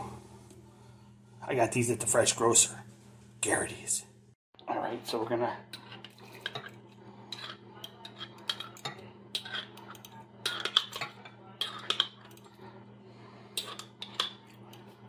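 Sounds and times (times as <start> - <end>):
metal utensil clinking and scraping: 5.7 - 12.6, 13.6 - 15.0.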